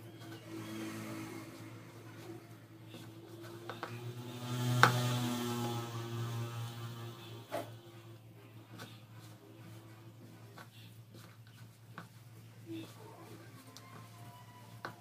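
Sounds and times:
steady pitched hum: 0:00.0 - 0:15.0
hands kneading dough in bowl: 0:08.6 - 0:15.0.

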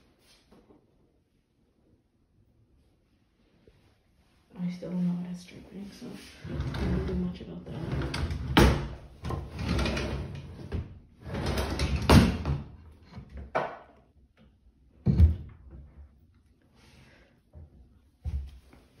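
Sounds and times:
knocks and thumps: 0:15.0 - 0:15.8.

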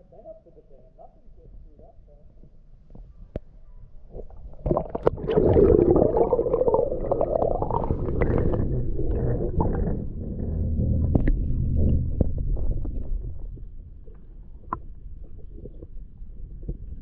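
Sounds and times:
low underwater rumble: 0:00.0 - 0:17.0
muffled underwater sloshing: 0:04.0 - 0:17.0.

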